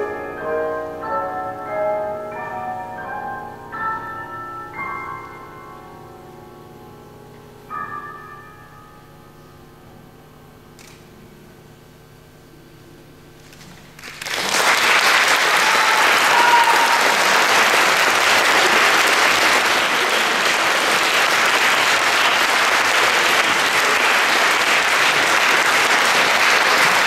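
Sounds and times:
audience applause: 13.9 - 27.0.

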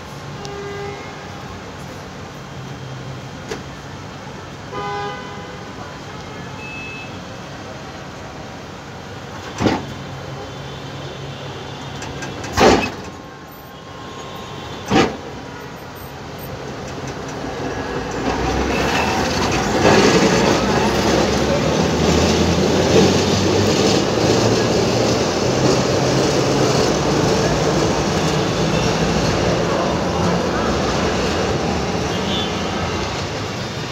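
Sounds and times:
tram rolling past: 15.1 - 33.9.

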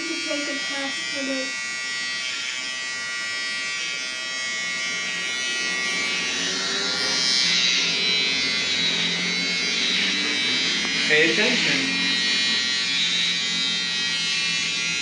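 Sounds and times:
electric shaver buzzing: 0.0 - 15.0.

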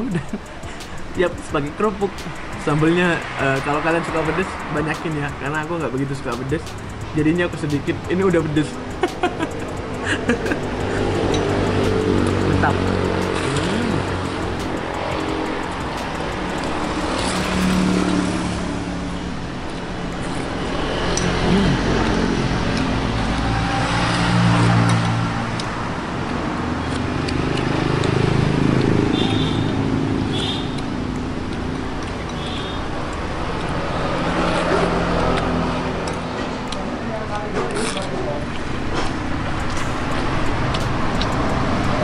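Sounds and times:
vehicles passing: 0.0 - 42.0.

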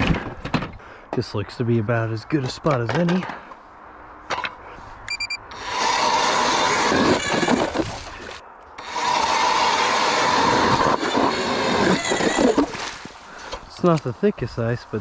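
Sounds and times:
short beep: 5.1 - 5.4
electric ice auger drilling: 5.5 - 13.0.

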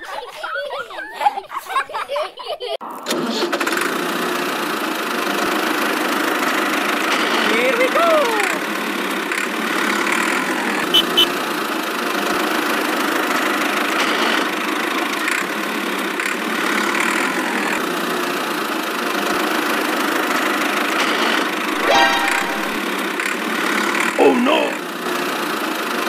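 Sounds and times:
toy tractor motor: 3.1 - 21.6.

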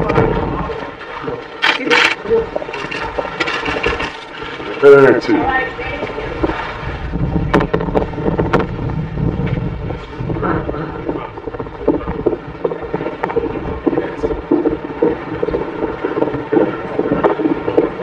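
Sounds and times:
faint indistinct voices: 0.0 - 8.7
wind buffeting microphone: 0.0 - 18.0.

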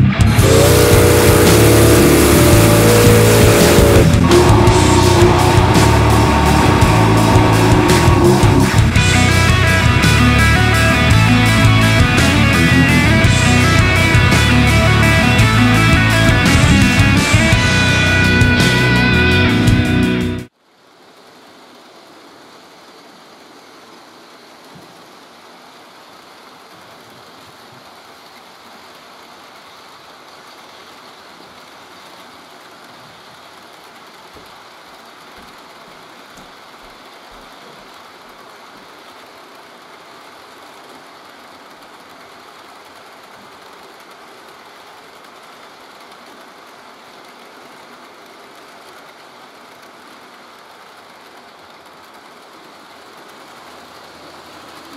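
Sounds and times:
model train wheels whirring: 0.3 - 18.6, 41.6 - 54.9.

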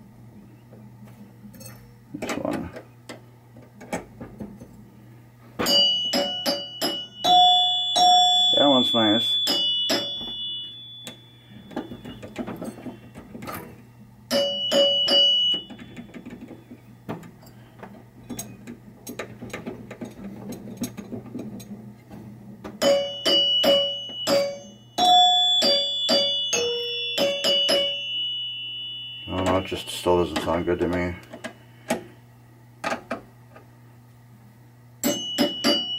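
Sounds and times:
pinball chimes dinging: 5.6 - 13.7, 14.3 - 16.8, 22.7 - 31.5, 35.0 - 35.9.

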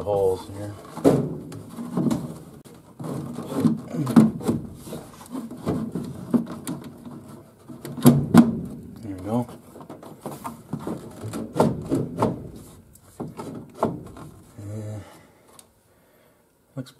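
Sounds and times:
plastic housing rubbing and scraping: 0.0 - 14.6
sharp knocks: 0.9 - 4.9, 7.8 - 8.8.

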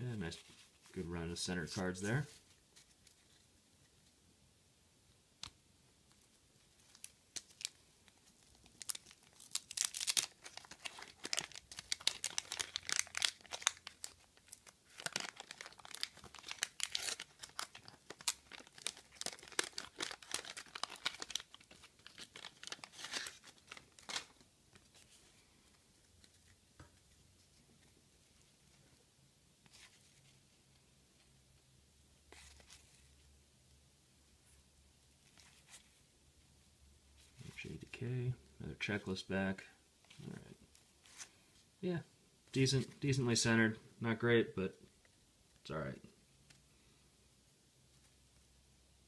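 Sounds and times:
wrapper tearing and crinkling: 6.8 - 7.8, 8.4 - 24.4.

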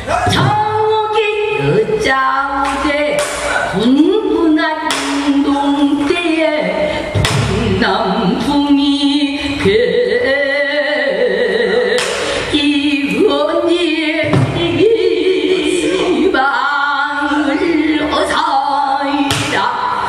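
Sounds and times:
woman singing with vibrato: 0.0 - 20.0.

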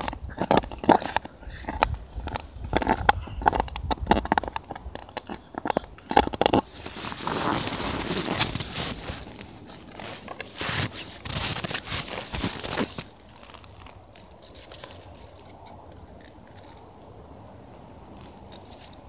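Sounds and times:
dog teeth clicking on plastic disc: 0.0 - 6.7
footsteps crunching through snow: 6.6 - 15.4.

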